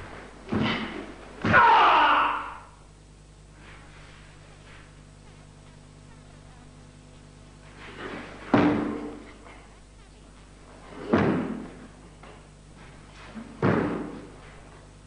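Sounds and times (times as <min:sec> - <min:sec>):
bare feet stamping on wooden floor: 0:08.4 - 0:09.3, 0:11.1 - 0:11.8, 0:13.4 - 0:14.3.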